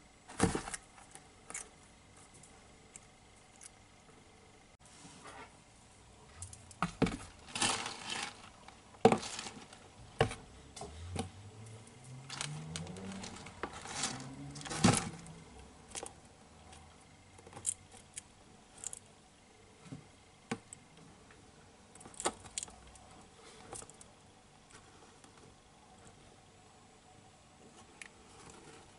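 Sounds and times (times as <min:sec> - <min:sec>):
rustling: 0:06.3 - 0:19.1.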